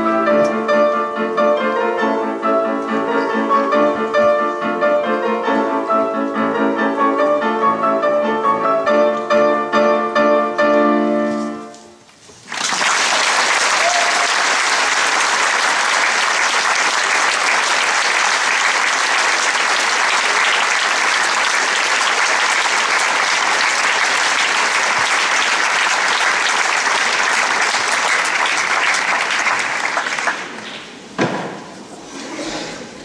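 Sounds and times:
audience applauding: 12.4 - 31.0
sharp knock: 31.2 - 31.7.

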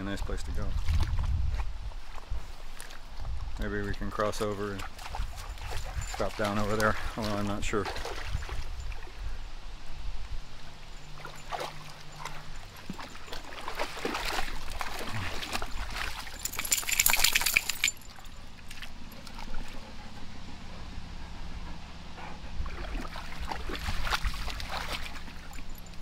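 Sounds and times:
creek water trickling: 0.0 - 26.0
dog splashing in water: 4.8 - 9.0, 11.1 - 19.8, 22.6 - 26.0.

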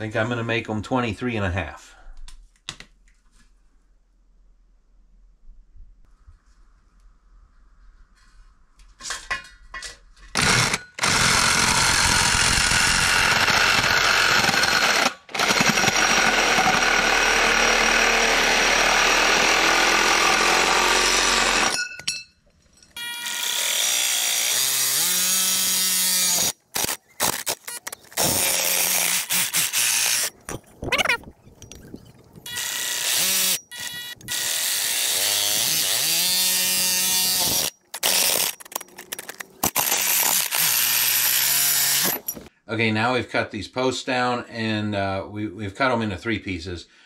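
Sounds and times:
reciprocating saw cutting steel tubing: 10.3 - 21.9, 23.0 - 30.5, 32.5 - 42.3.

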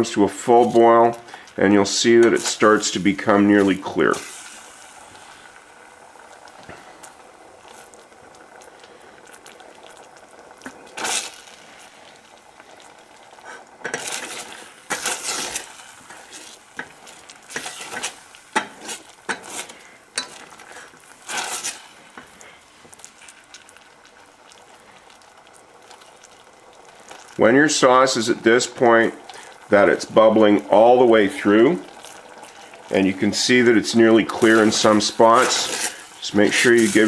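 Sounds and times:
thick sauce bubbling: 0.0 - 37.0
spatula scraping a pan: 13.5 - 22.3.

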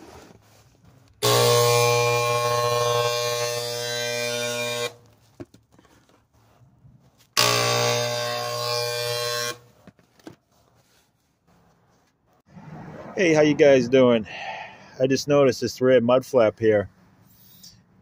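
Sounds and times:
electric sprayer buzzing: 1.2 - 5.0, 7.4 - 9.6.

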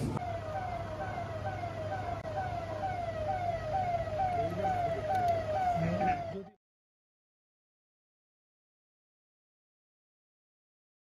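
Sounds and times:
siren yelping: 0.1 - 6.6.

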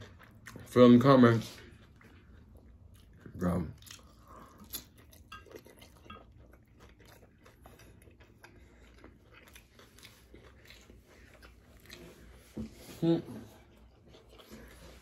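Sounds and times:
faint chewing: 0.0 - 15.0.

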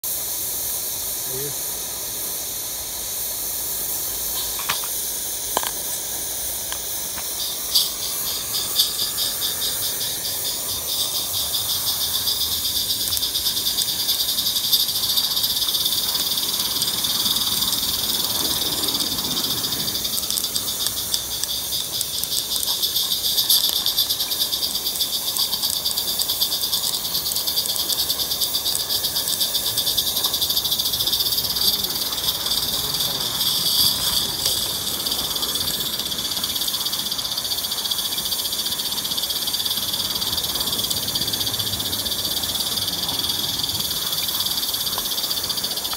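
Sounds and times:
fast steam chuffing: 0.0 - 45.9
steam locomotive hissing: 0.0 - 45.9
sharp clicks: 20.2 - 29.4.

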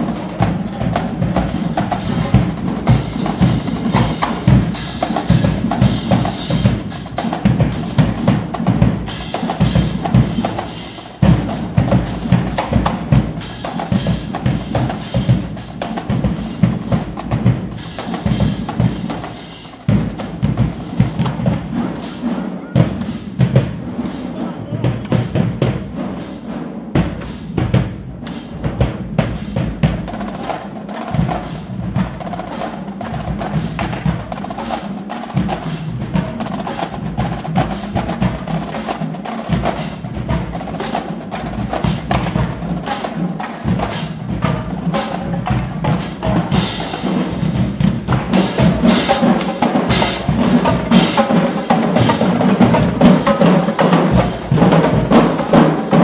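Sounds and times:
bass drums: 0.0 - 22.1, 22.8 - 26.1, 26.9 - 30.5, 43.5 - 56.0
snare drums: 0.0 - 56.0.

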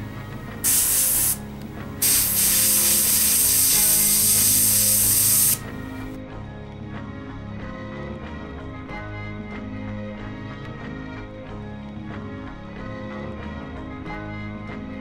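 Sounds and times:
airbrush spraying hiss: 0.6 - 1.4, 2.0 - 6.2.

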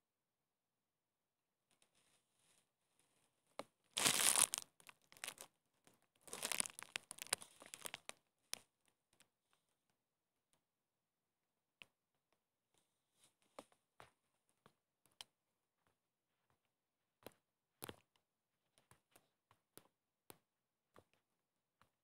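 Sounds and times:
rustling crinkling noise: 4.0 - 5.5, 6.2 - 8.6.

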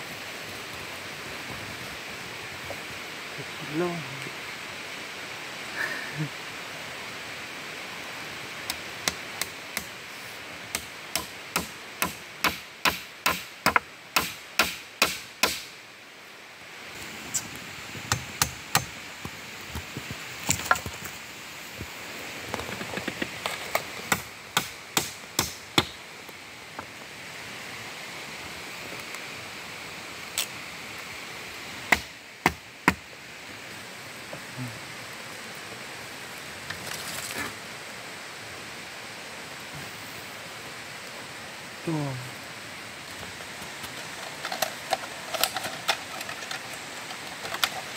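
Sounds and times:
blade chopping wooden sticks: 10.7 - 15.7, 18.1 - 19.0.

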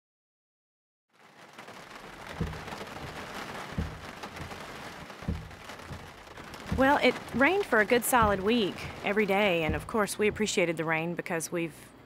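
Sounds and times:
heavy rain on car windshield: 1.1 - 10.7
windshield wipers thumping: 1.6 - 10.8.

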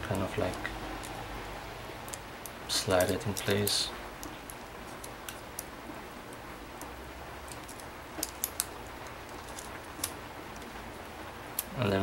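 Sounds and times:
steady low hiss: 0.0 - 12.0
small clicks and taps: 2.0 - 5.7, 7.5 - 10.7.

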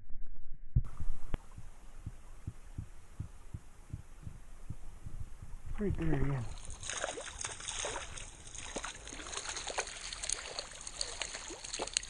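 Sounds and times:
flowing stream: 5.9 - 12.0
fish splashing at surface: 6.4 - 12.0.

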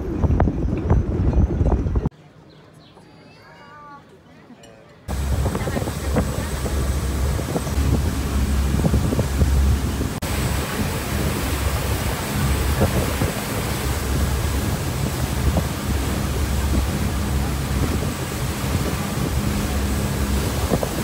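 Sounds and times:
wind buffeting microphone: 0.0 - 2.1, 5.1 - 21.0
boat engine rumble: 0.0 - 3.0, 3.8 - 21.0
churning water of wake: 5.1 - 21.0.

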